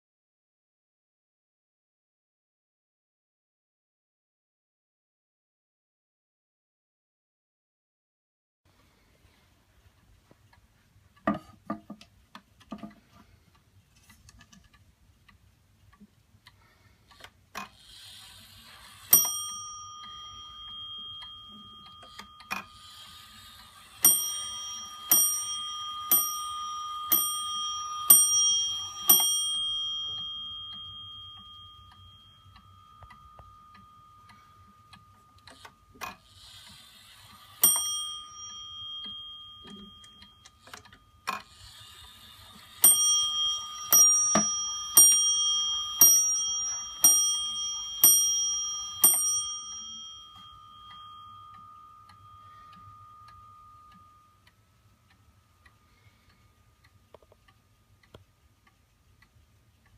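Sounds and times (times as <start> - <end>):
clock ticking: 9.6 - 59.9
clock bell striking: 19.0 - 36.0, 37.4 - 41.6, 42.4 - 54.4.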